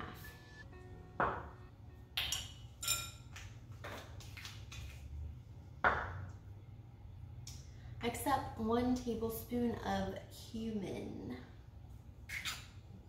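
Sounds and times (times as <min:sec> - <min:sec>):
spoon clinking on glass bowl: 0:02.2 - 0:03.4.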